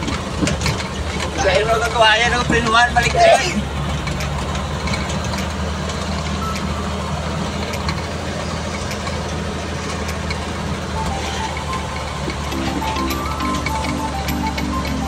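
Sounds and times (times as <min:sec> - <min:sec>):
truck engine droning: 0:00.0 - 0:15.0.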